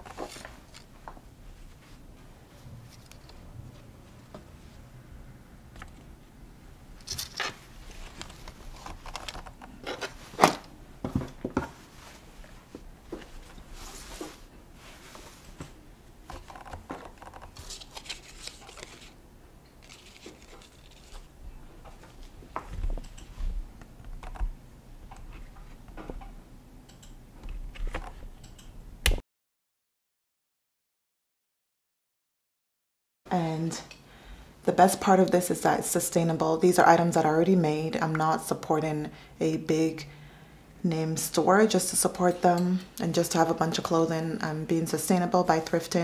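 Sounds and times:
fabric rustling and scratching: 11.8 - 19.2, 19.8 - 21.3.

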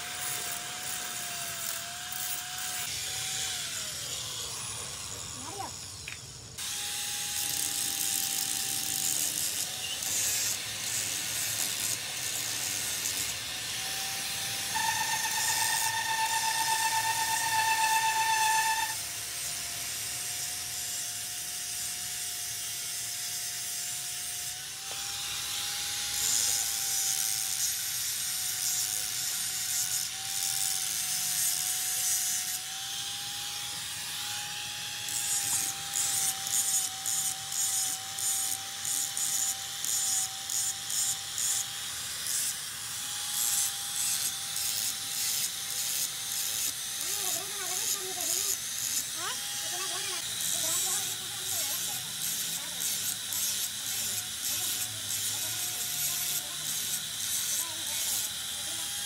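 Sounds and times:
loud high tool whine: 0.0 - 59.0
hissing and scraping: 7.4 - 19.6.

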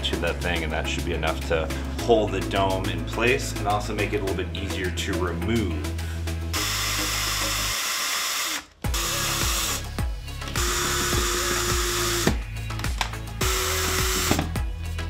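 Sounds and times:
background music: 0.0 - 15.0
cordless drill whining: 6.5 - 12.4, 13.4 - 14.5.

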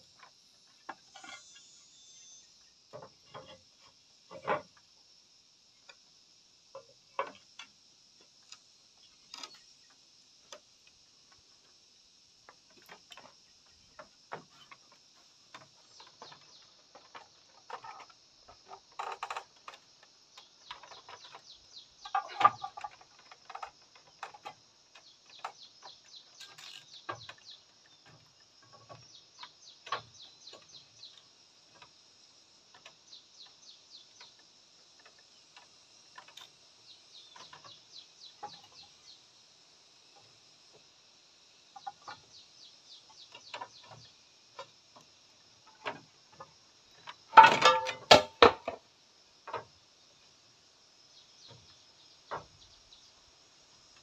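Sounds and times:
roof tiles clacking: 47.3 - 48.8.

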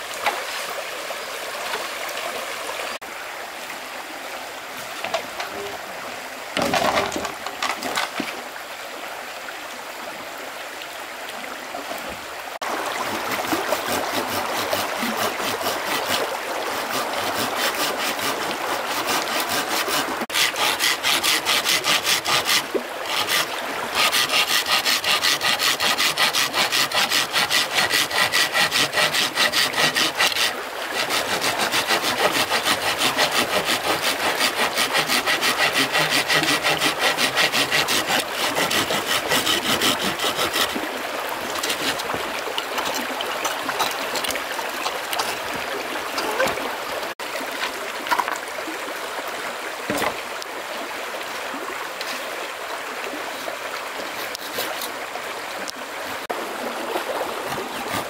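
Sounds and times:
stream running: 0.0 - 58.0
hand saw cutting wood: 6.6 - 8.2, 13.0 - 40.8, 41.5 - 42.2, 54.1 - 55.0, 57.4 - 58.0.

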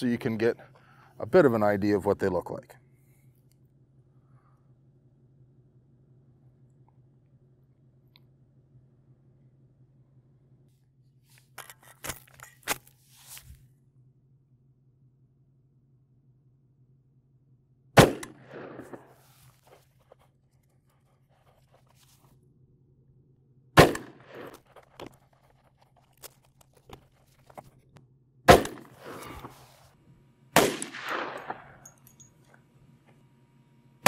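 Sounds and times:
gunshots: 18.0 - 19.2, 23.8 - 24.6, 28.5 - 29.6, 30.6 - 31.9.

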